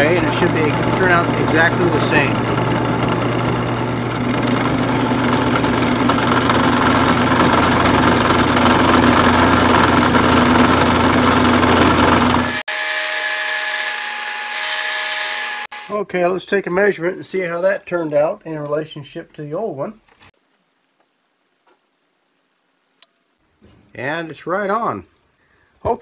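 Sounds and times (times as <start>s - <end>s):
drill press motor hum: 0.0s - 15.9s
end mill cutting metal: 0.0s - 15.9s
steady machine whine: 0.0s - 15.9s.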